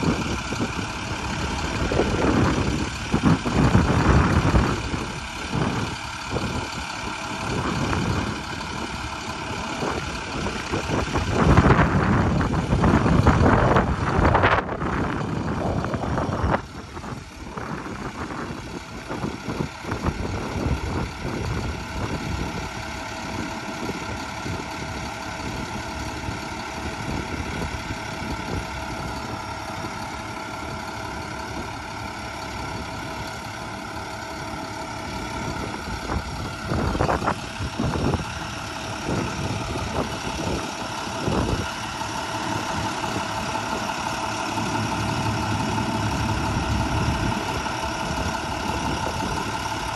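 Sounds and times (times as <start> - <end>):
truck engine idling: 0.0 - 49.9.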